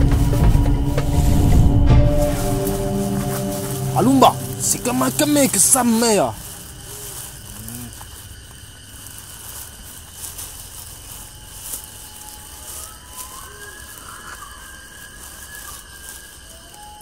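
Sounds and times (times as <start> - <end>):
high insect drone: 0.0 - 17.0
faint crackles: 2.2 - 17.0
faint thin whistling tones: 10.9 - 17.0.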